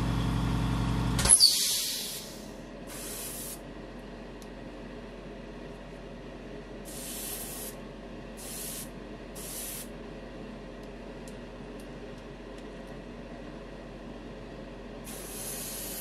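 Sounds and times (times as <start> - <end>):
steady low hum: 0.0 - 16.0
airbrush hissing: 1.6 - 3.6, 6.9 - 7.8, 8.4 - 9.9, 15.1 - 16.0.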